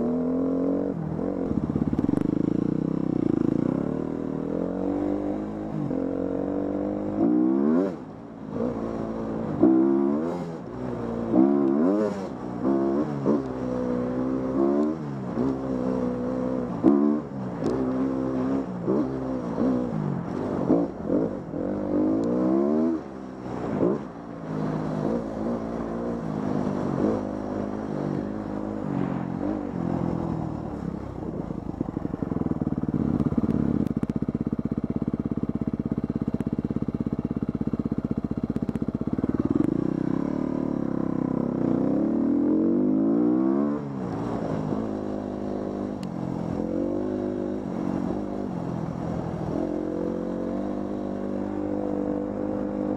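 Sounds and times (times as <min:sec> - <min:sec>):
dirt bike engine revving: 0:08.6 - 0:23.1.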